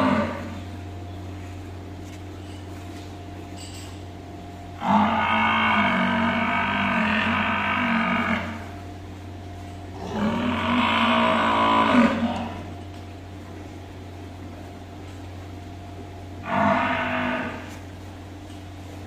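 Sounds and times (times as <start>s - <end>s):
water buffalo mooing: 0.0s - 0.7s, 4.8s - 8.8s, 9.9s - 12.8s, 16.4s - 17.9s
steady low hum: 0.0s - 19.0s.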